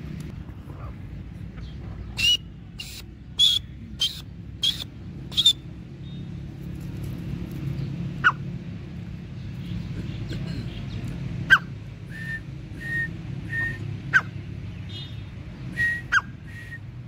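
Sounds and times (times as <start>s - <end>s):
bird calling sharply: 2.2s - 5.6s.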